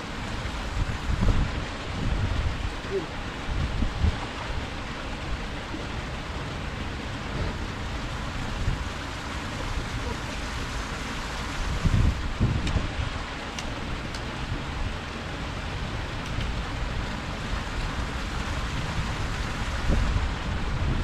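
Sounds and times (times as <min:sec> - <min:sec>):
flowing canal water: 0:00.0 - 0:21.0
wind buffeting microphone: 0:00.5 - 0:06.3, 0:11.5 - 0:15.0, 0:18.0 - 0:21.0.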